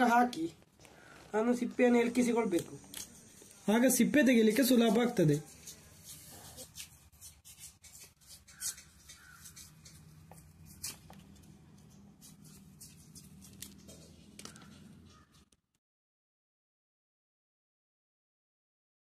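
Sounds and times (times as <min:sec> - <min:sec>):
knife scraping peel: 0:02.4 - 0:03.6, 0:04.2 - 0:15.3.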